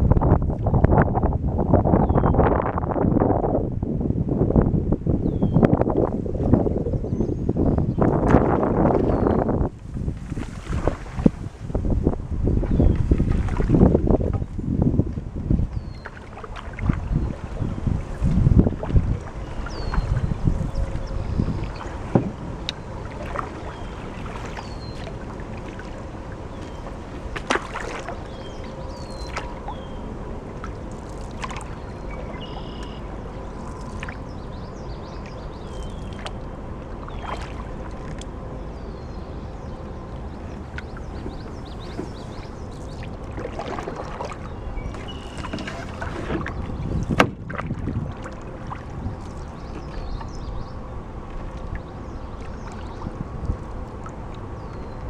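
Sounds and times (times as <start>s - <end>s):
wind rumble on microphone: 0.0s - 55.0s
paddle stroking through water: 8.0s - 38.3s, 40.4s - 55.0s
birds chirping: 9.0s - 9.7s, 19.4s - 25.2s, 27.8s - 30.1s, 30.8s - 36.3s, 38.4s - 47.2s, 49.3s - 53.2s
paddle knocking against canoe: 21.6s - 26.0s, 26.6s - 28.2s, 40.7s - 48.8s.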